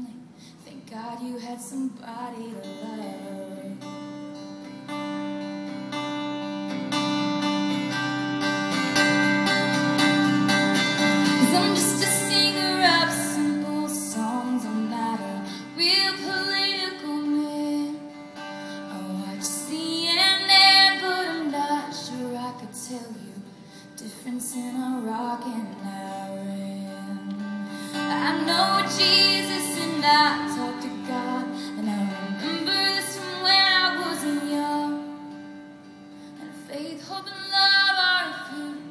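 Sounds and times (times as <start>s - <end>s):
woman singing: 0.0s - 3.9s, 11.2s - 35.6s, 36.3s - 38.9s
acoustic guitar strumming: 2.4s - 38.9s.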